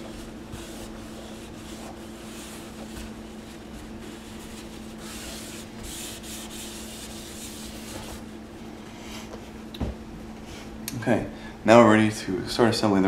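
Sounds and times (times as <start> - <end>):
paper towel scrubbing sink drain: 0.0 - 8.4.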